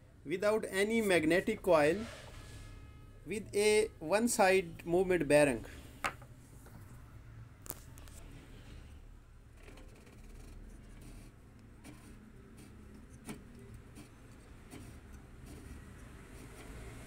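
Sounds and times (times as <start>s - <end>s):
light rubbing of gears: 9.5s - 17.0s.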